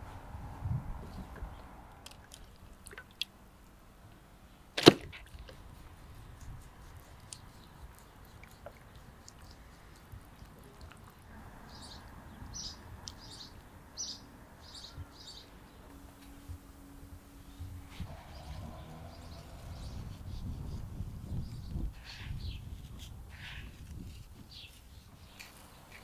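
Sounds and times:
bird chirping: 11.7s - 22.7s.

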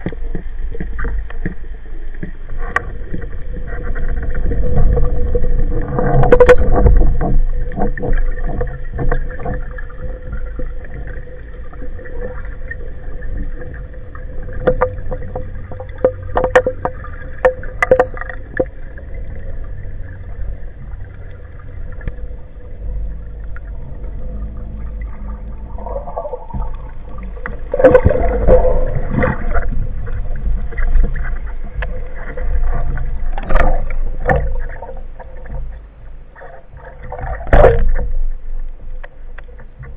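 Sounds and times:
underwater hum and water noise: 0.0s - 39.9s
water bubbling and rushing: 0.0s - 39.9s
sharp clicks and knocks: 14.6s - 18.7s.

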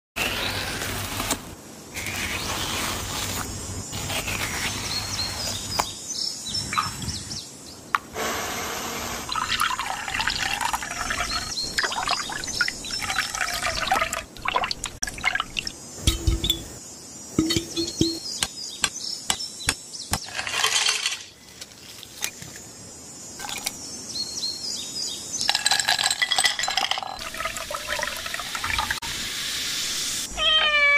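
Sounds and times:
liquid pouring and splashing: 9.3s - 16.4s, 25.6s - 29.0s.

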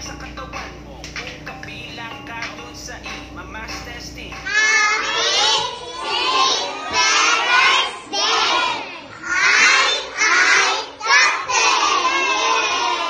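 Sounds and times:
children chanting in unison: 4.5s - 13.0s.

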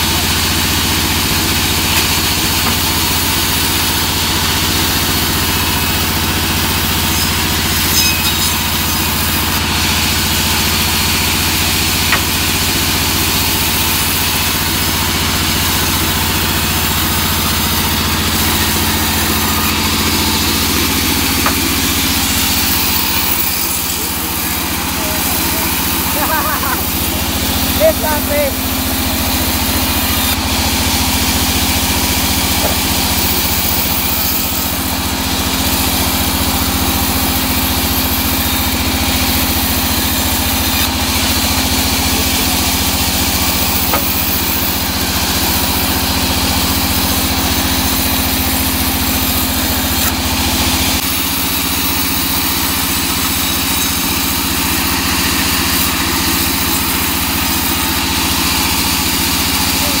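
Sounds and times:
band saw cutting wood: 0.0s - 60.0s.

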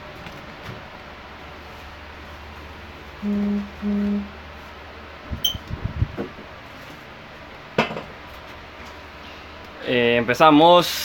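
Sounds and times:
steady low tone: 3.2s - 4.5s, 5.4s - 5.7s
high beep: 5.4s - 5.6s.

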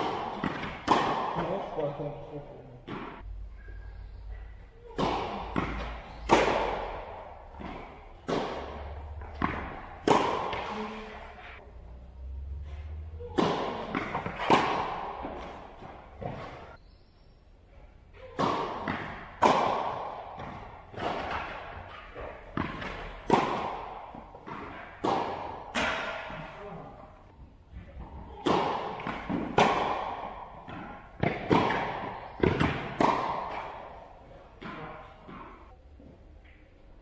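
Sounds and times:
tennis ball bouncing on hard court: 0.0s - 1.9s, 2.9s - 3.3s, 4.3s - 11.5s, 12.9s - 16.8s, 18.2s - 26.6s, 27.7s - 35.6s
tennis ball struck by rackets: 0.0s - 1.9s, 2.9s - 3.3s, 4.3s - 11.4s, 12.8s - 16.8s, 18.2s - 26.6s, 27.9s - 35.6s.

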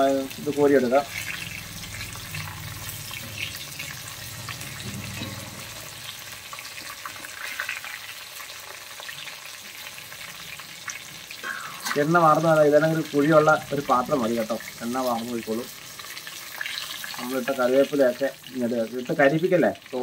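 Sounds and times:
food deep-frying in hot oil: 0.0s - 20.0s
strainer moving through oil: 0.8s - 8.2s.

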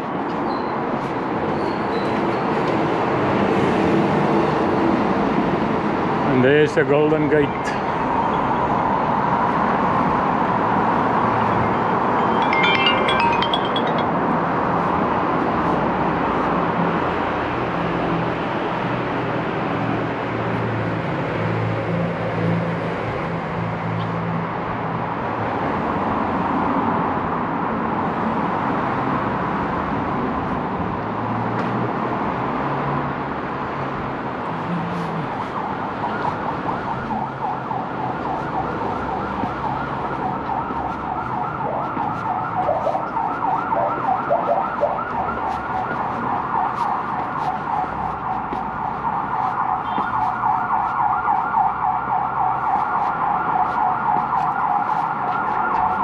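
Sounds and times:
road traffic noise: 0.0s - 56.0s
emergency siren yelping: 35.0s - 46.8s, 47.5s - 56.0s.

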